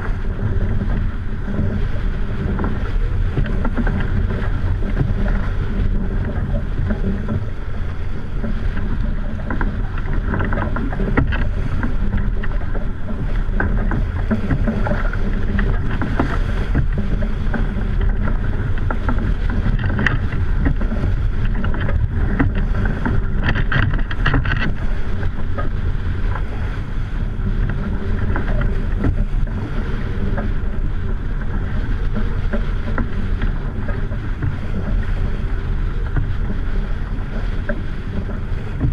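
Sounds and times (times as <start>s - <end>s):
water rushing along hull: 0.0s - 38.9s
wind buffeting microphone: 0.0s - 38.9s.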